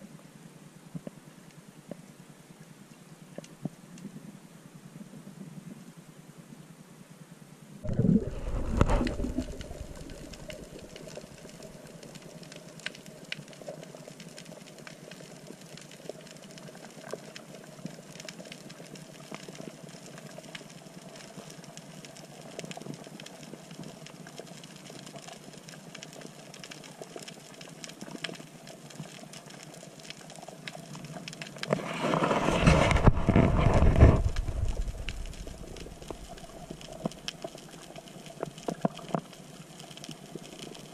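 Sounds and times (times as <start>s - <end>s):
faint underwater hum: 0.0s - 31.5s, 32.3s - 40.9s
faint crackling clicks: 2.8s - 4.2s, 8.0s - 40.9s
deep rushing water: 7.9s - 11.7s.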